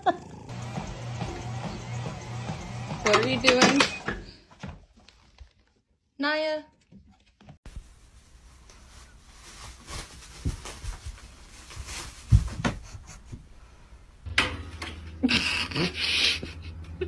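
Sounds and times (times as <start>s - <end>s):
plastic bag rustling: 7.7s - 13.0s.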